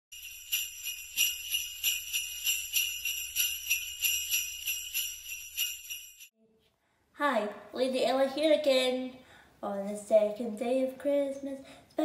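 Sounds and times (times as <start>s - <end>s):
jingle bells shaken: 0.1s - 6.3s.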